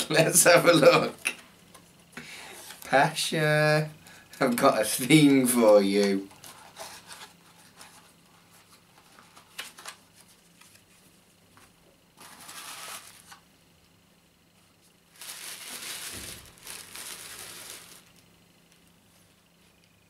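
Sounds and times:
tissue paper crinkling and rustling: 12.2s - 13.4s, 15.1s - 18.2s.

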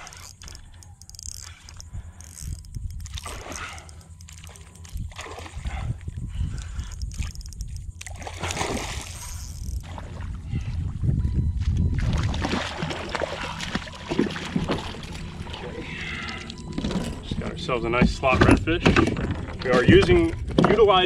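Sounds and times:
fish thrashing and splashing: 0.0s - 10.8s, 11.9s - 17.4s
steady low rumble: 0.0s - 21.0s.

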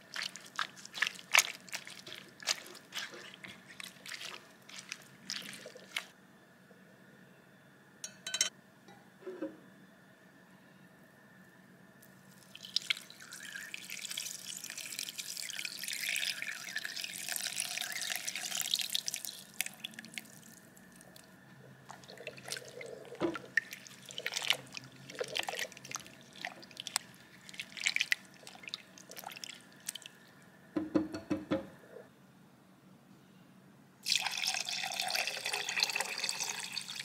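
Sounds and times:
tea pouring through strainer: 0.0s - 6.1s, 12.3s - 20.6s, 21.8s - 30.2s, 34.0s - 37.0s
spatula stirring and tapping glass: 8.0s - 8.5s.

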